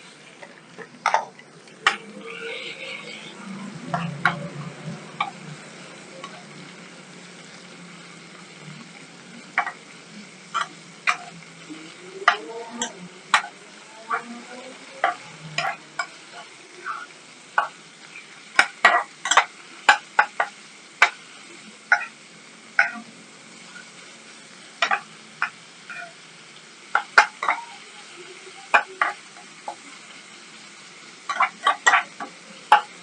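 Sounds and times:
meat sizzling in a frying pan: 0.0s - 33.0s
spatula scraping a pan: 1.0s - 5.4s, 12.2s - 21.2s, 21.9s - 22.2s, 22.8s - 23.1s, 24.8s - 26.2s, 26.9s - 27.8s, 31.3s - 32.9s.

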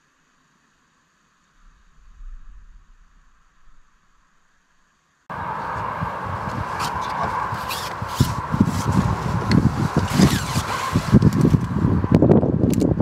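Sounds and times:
wind buffeting microphone: 5.3s - 13.0s
scrapes and rustles: 6.8s - 11.8s.

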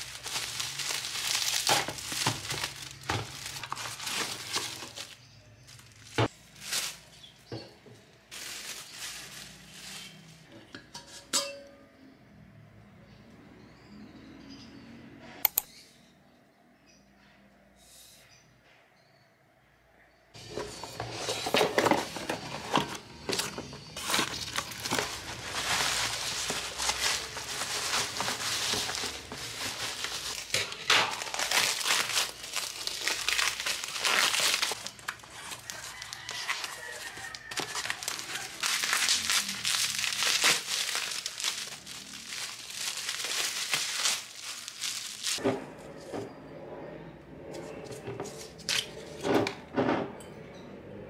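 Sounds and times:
bubble wrap crinkling: 0.0s - 7.5s, 8.2s - 10.5s, 20.8s - 45.4s.

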